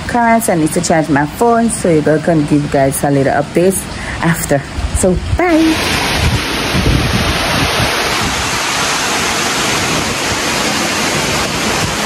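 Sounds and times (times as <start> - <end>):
heavy rain: 0.0 - 12.0
hurricane wind: 0.0 - 12.0
wind gusts buffeting microphone: 0.0 - 12.0.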